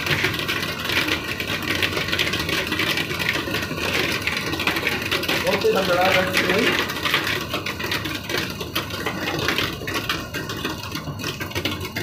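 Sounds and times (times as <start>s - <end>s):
hail and heavy rain: 0.1s - 11.8s.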